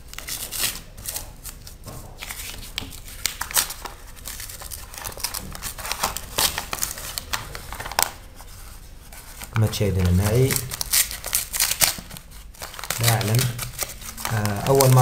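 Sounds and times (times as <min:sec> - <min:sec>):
paper envelope tearing: 0:00.1 - 0:08.2, 0:09.2 - 0:15.0.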